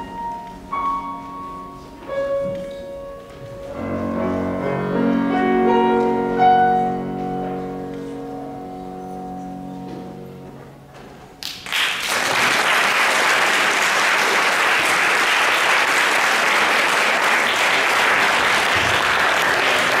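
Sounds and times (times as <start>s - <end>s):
piano chord ringing: 0.0s - 11.4s
audience applauding: 11.4s - 20.0s.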